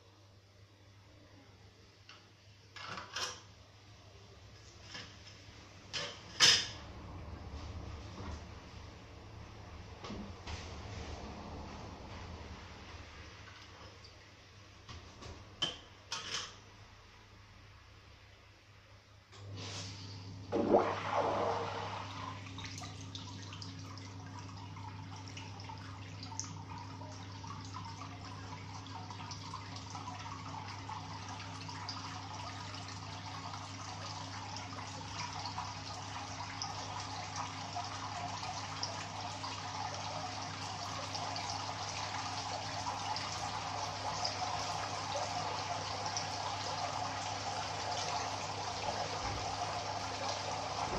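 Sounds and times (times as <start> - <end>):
water splashing and trickling: 20.6 - 50.9.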